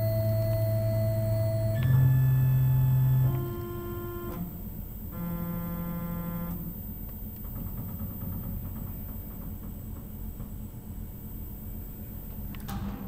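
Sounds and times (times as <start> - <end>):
motor whine: 0.0 - 9.0
low machine hum: 0.0 - 13.0.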